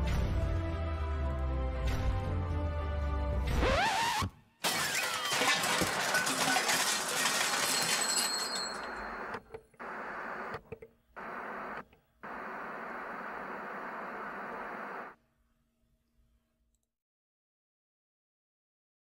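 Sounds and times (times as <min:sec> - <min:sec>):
shattering crash: 0:04.6 - 0:09.4
tv static hiss: 0:09.1 - 0:10.6, 0:11.2 - 0:15.2.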